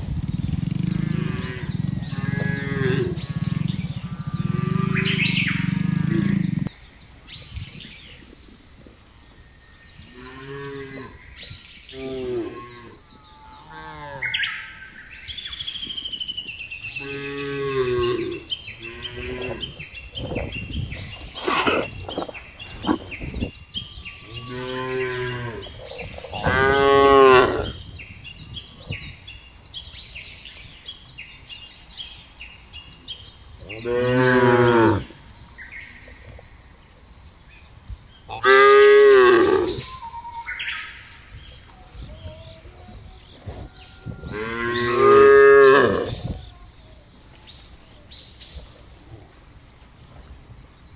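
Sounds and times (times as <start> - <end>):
cattle mooing: 1.0 - 6.6, 24.2 - 27.8, 43.4 - 46.2.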